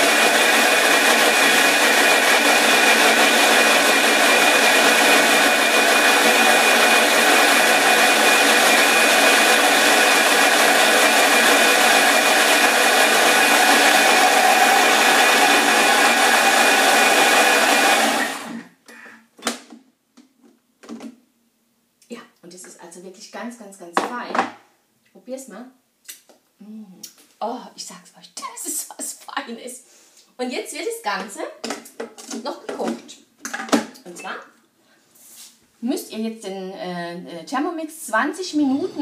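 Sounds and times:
food processor blade whirring: 0.0 - 18.7.

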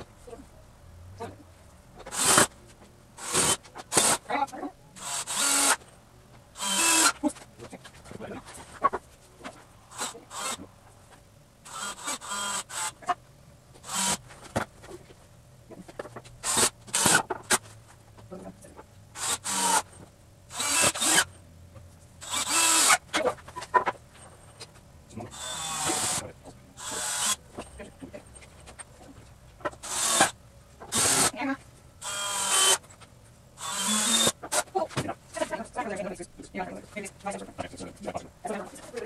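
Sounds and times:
cordless drill driving screws: 2.1 - 2.5, 3.2 - 4.2, 5.0 - 5.8, 6.6 - 7.2, 9.9 - 10.6, 11.7 - 13.0, 13.8 - 14.2, 16.4 - 17.2, 19.2 - 19.9, 20.5 - 21.3, 22.2 - 23.0, 25.3 - 26.2, 26.8 - 27.4, 29.8 - 31.3, 32.0 - 32.8, 33.6 - 34.7.

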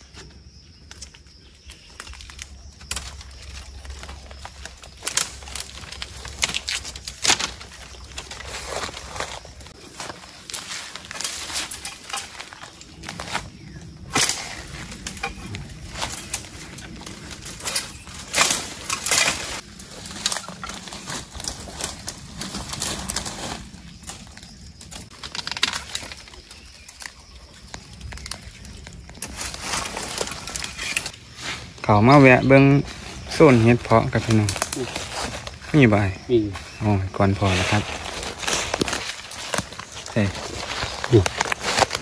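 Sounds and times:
leaves rustling and crunching underfoot: 0.8 - 42.0
sharp twig cracks: 0.9 - 8.3, 14.1 - 15.4, 17.4 - 20.5.

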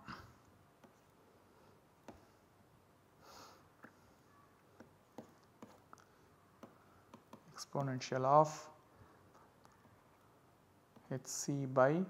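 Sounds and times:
stylus tapping on tablet screen: 2.0 - 2.4, 4.8 - 6.0, 6.6 - 8.0.

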